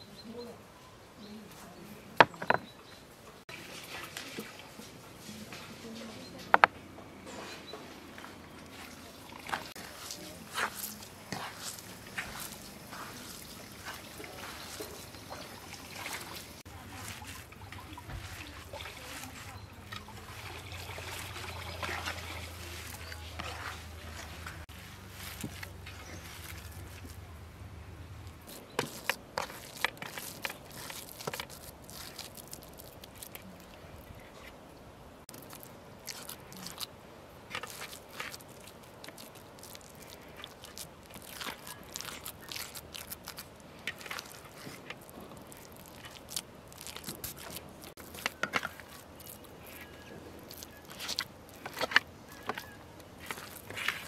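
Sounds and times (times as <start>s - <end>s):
hands squeezing moist filling: 8.5s - 27.4s, 28.2s - 54.0s
crackling clicks and squelches: 28.2s - 54.0s.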